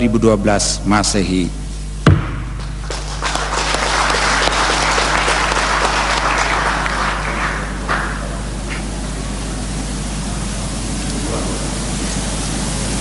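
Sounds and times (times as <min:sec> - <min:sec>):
sharp knock: 0:02.0 - 0:02.8
audience applauding: 0:02.6 - 0:08.6.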